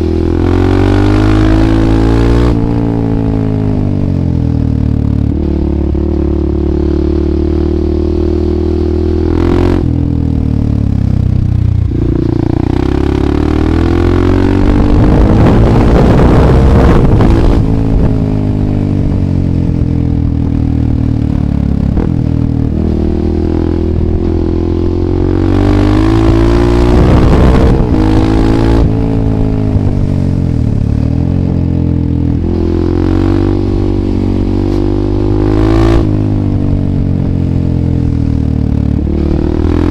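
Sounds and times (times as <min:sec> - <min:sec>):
motorcycle engine revving through gears: 0:00.0 - 0:39.9.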